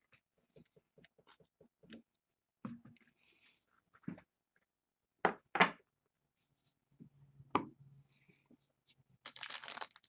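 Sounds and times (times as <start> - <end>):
paper rustling: 9.3 - 10.0.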